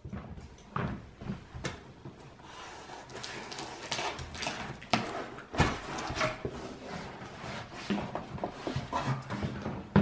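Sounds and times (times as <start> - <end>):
cardboard scraping and knocking: 3.7 - 10.0.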